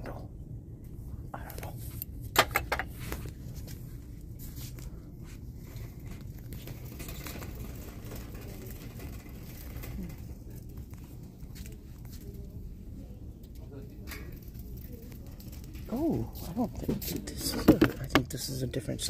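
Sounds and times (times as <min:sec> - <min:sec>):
merchandise clicking and knocking: 0:02.3 - 0:03.0, 0:05.8 - 0:12.3, 0:16.8 - 0:18.4.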